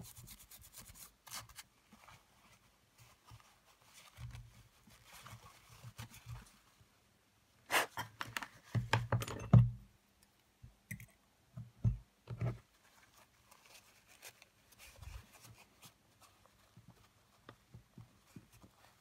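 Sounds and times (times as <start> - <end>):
tissue paper rustling: 0.5 - 6.8, 12.7 - 17.5.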